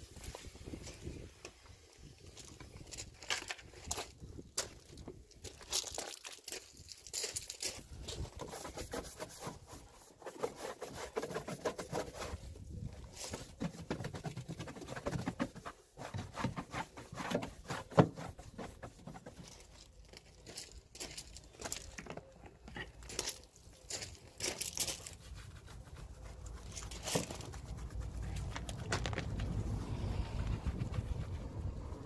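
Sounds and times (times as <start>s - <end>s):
brush scrubbing a tyre: 8.2s - 19.5s, 24.6s - 32.0s.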